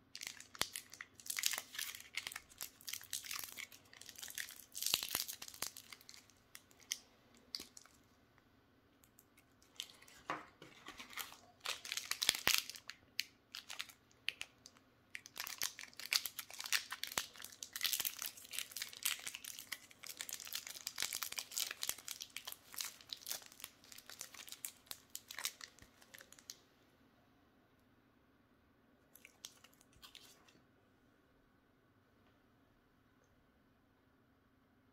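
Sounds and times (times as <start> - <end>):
foil wrappers crinkling: 0.2 - 7.9, 9.7 - 14.5, 15.2 - 26.5.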